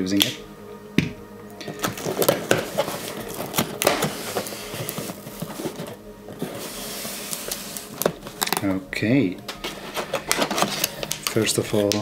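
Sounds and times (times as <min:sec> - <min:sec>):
packing tape tearing: 0:01.6 - 0:08.7, 0:09.4 - 0:12.0
cardboard flaps crackling: 0:01.6 - 0:08.8
packing paper rustling: 0:01.6 - 0:08.8, 0:09.4 - 0:12.0.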